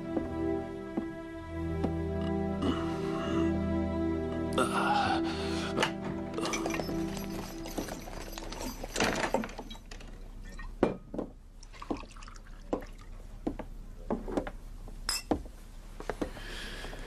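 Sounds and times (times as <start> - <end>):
liquid pouring or splashing: 11.6 - 13.2.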